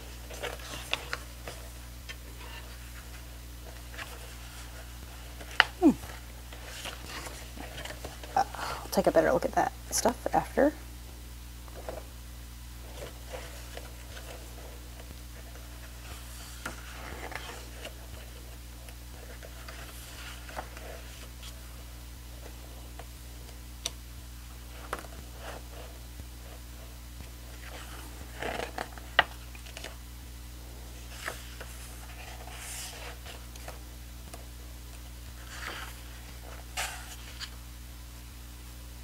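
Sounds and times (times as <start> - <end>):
paper pages rustling: 0.0 - 8.4, 12.8 - 21.8, 24.6 - 26.9, 27.5 - 30.0, 31.0 - 37.6.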